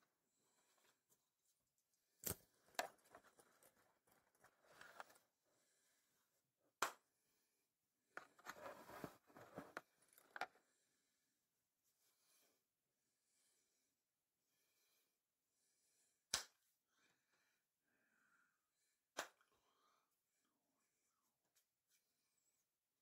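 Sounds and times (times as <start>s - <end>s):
handling rustling: 2.2s - 5.2s, 8.2s - 10.6s.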